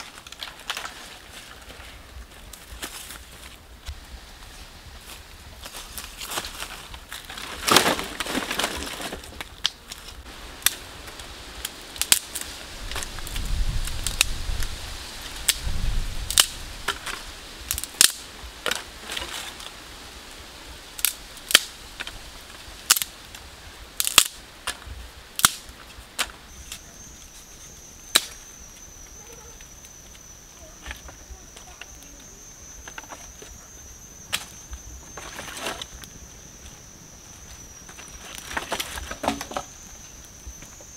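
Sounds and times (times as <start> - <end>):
dry sticks snapping: 5.6 - 10.8, 11.6 - 14.7, 15.4 - 15.6, 16.3 - 19.7, 21.0 - 22.2, 22.8 - 23.4, 24.0 - 24.8, 25.4 - 26.8, 28.1 - 28.4, 34.3 - 36.2.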